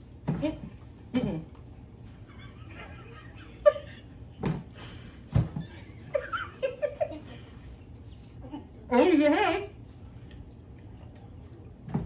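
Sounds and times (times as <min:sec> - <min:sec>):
girls giggling: 0:02.2 - 0:04.4, 0:05.6 - 0:08.9.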